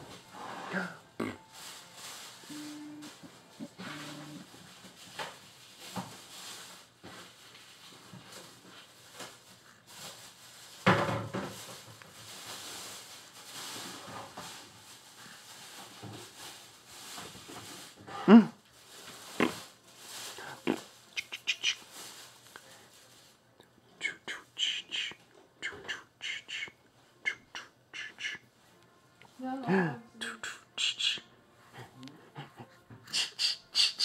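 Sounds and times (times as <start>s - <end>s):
infant vocalizing: 2.5s - 4.5s.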